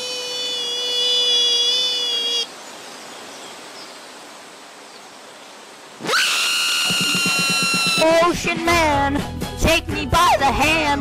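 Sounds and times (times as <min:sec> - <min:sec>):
outdoor background noise: 0:00.0 - 0:08.9
high held vocal cry: 0:06.0 - 0:08.3.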